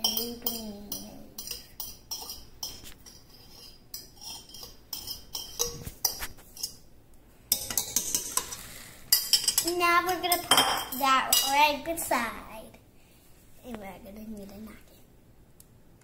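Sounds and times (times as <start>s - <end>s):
spoon clinking against bowls: 0.0s - 6.8s, 7.5s - 11.6s.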